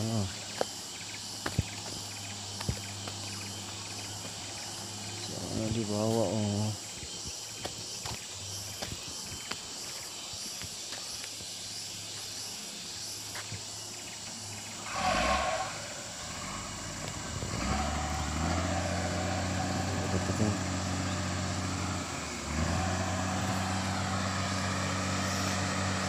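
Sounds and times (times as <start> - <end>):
heavy vehicle engine running: 14.9 - 26.0.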